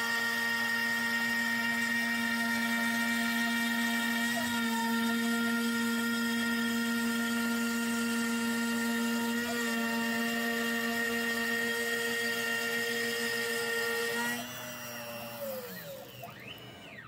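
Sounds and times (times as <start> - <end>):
router cutting with high whine: 0.0 - 17.0.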